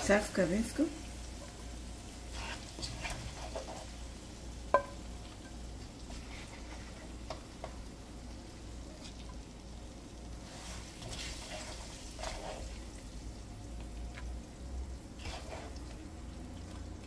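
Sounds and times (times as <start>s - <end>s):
spoon scraping in a pan: 1.3s - 7.8s, 10.4s - 12.9s, 15.1s - 16.1s.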